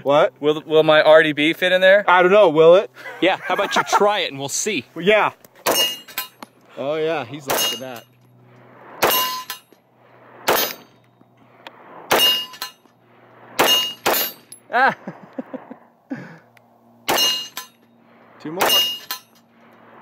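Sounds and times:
steel target clanging: 0:05.6 - 0:06.6, 0:07.4 - 0:08.2, 0:09.0 - 0:09.8, 0:10.4 - 0:11.1, 0:12.1 - 0:13.0, 0:13.6 - 0:14.7, 0:17.1 - 0:17.9, 0:18.6 - 0:19.5
pistol shots: 0:10.4 - 0:10.8, 0:13.6 - 0:14.4, 0:18.6 - 0:19.1.

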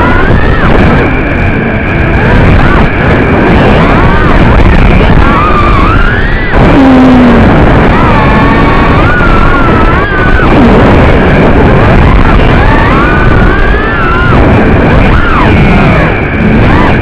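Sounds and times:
drone motors whining: 0:00.0 - 0:17.0
propeller noise: 0:00.0 - 0:17.0
rushing wind: 0:00.0 - 0:17.0.

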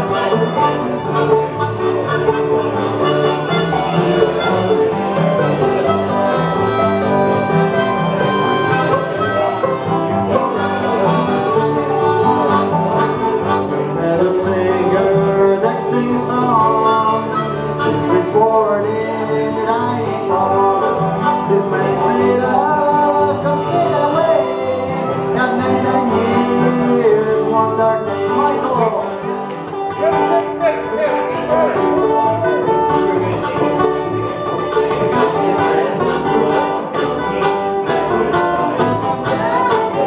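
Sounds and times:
acoustic guitar strumming: 0:00.0 - 0:40.0
banjo: 0:00.0 - 0:40.0
bluegrass band playing: 0:00.0 - 0:40.0
harmonica: 0:00.0 - 0:40.0.

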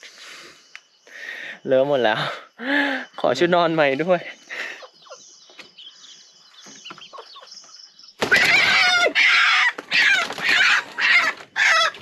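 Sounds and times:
chicken squawking: 0:08.2 - 0:12.0.

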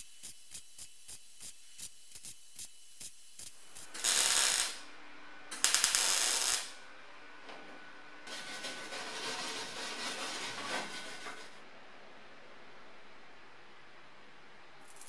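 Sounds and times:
welding noise: 0:00.0 - 0:04.9, 0:05.5 - 0:06.8
welder ticking: 0:01.4 - 0:04.8, 0:05.5 - 0:06.7.

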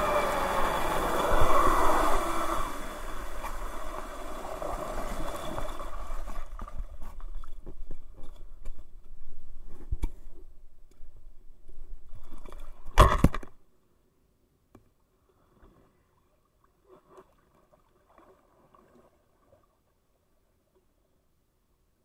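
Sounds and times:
surfboard hull scraping bank: 0:00.0 - 0:08.6.

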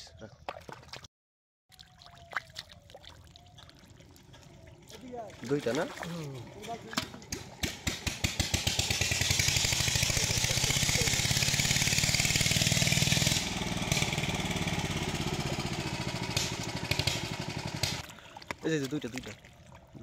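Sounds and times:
small engine running: 0:04.0 - 0:18.1.

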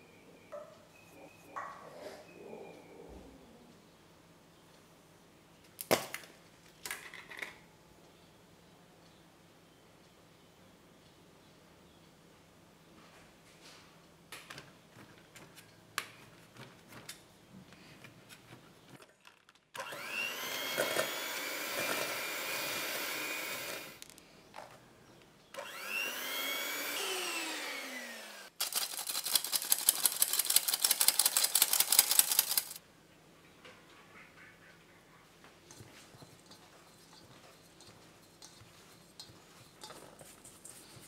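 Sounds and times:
electric hand mixer whining: 0:19.8 - 0:24.0, 0:25.6 - 0:28.6
spoon tapping steel sifter: 0:35.7 - 0:41.0.

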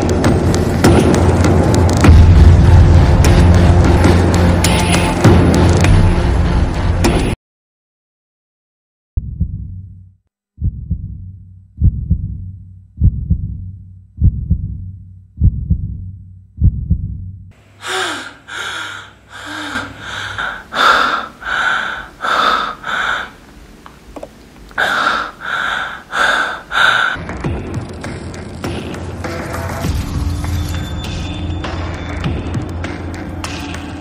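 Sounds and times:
heartbeat thumps: 0:09.2 - 0:10.0, 0:10.6 - 0:17.5
person panting hard: 0:17.8 - 0:23.4, 0:24.8 - 0:27.2.

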